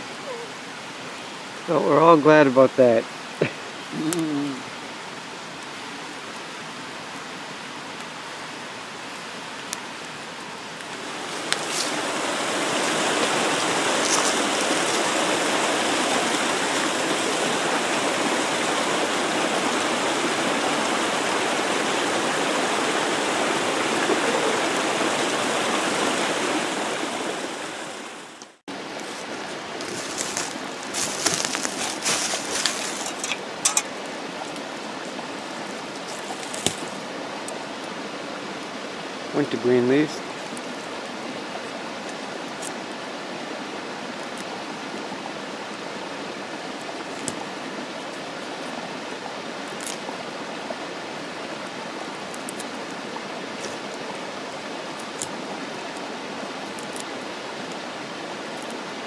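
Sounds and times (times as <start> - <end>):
water rushing over rocks: 0.0 - 59.0
hand rustling dry leaves: 11.1 - 15.8, 28.9 - 33.7.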